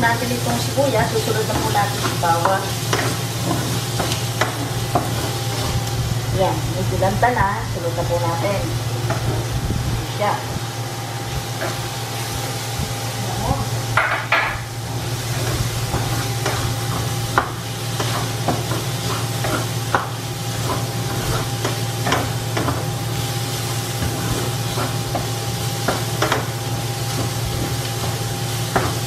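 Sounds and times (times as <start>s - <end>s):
onions sizzling in oil: 0.0s - 29.0s
steady low hum: 0.0s - 29.0s
spatula scraping and tapping pan: 1.0s - 5.9s, 15.3s - 22.9s, 23.6s - 29.0s.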